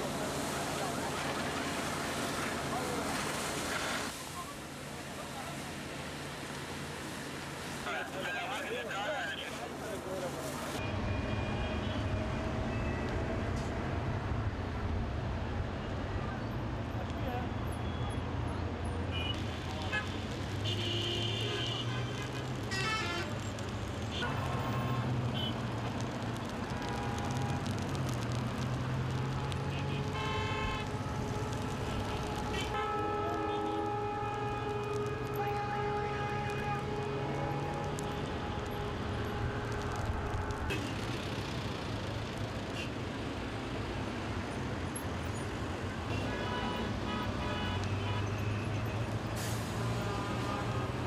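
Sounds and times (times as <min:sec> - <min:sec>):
traffic engine hum: 0:11.5 - 0:51.0
distant voices or horn tones: 0:29.5 - 0:40.8.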